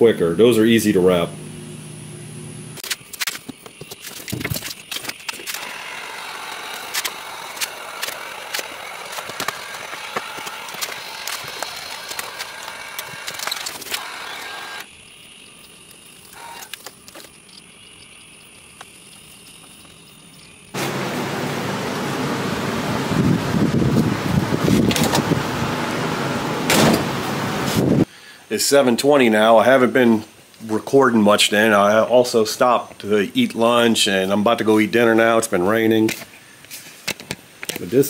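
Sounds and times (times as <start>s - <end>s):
hands rustling vinyl film: 2.8s - 14.8s
loud steady rushing noise: 20.8s - 28.0s.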